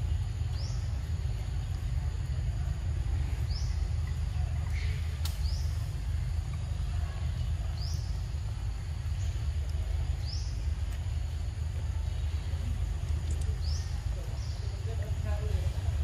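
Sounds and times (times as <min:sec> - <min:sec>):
low rumble: 0:00.0 - 0:16.0
sharp click: 0:05.2 - 0:05.6.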